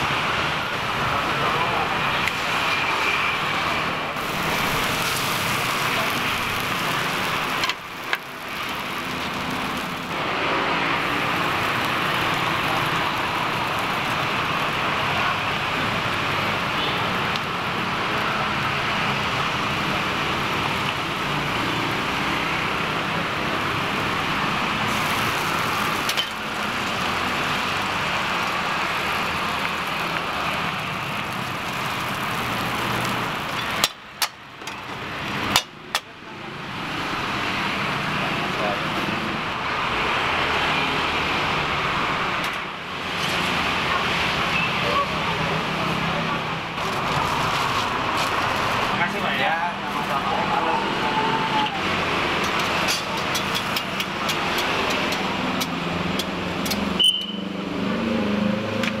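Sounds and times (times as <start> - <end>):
road traffic: 0.0 - 59.0
batter sizzling in iron pans: 2.2 - 35.7.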